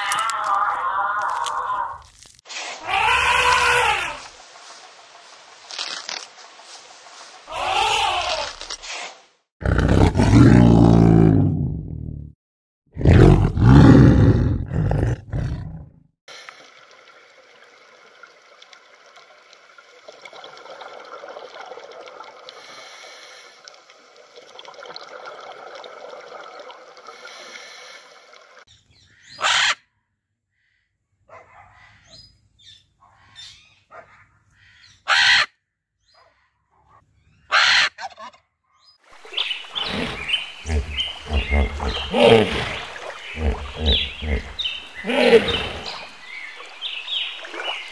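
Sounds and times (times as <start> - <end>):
tiger roar: 9.6 - 12.2, 12.9 - 16.0, 39.2 - 46.6
macaw squawking: 29.1 - 29.8, 34.6 - 35.5, 37.5 - 38.3.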